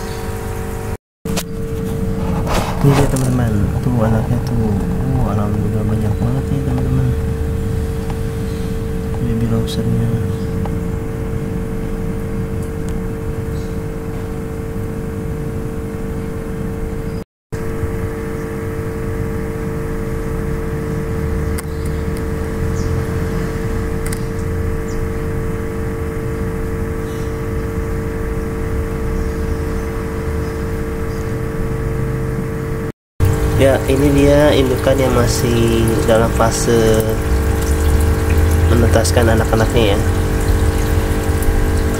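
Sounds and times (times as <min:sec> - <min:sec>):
mechanical hum with steady tone: 0:00.0 - 0:41.9
low uneven rumble: 0:01.3 - 0:13.4, 0:33.2 - 0:41.9.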